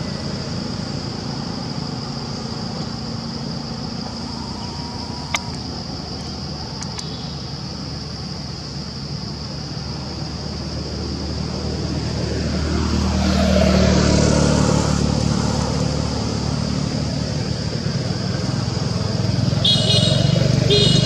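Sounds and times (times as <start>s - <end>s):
vehicle engine passing: 10.8s - 21.0s.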